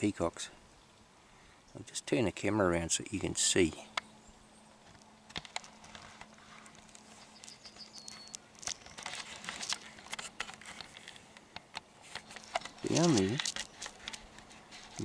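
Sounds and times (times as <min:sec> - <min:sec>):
camera handling clicks and rustles: 0:04.8 - 0:15.0.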